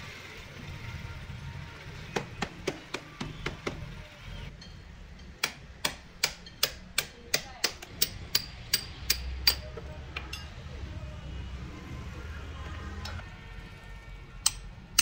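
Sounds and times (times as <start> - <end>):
hammer striking metal blade: 4.6 - 9.7, 14.4 - 15.0.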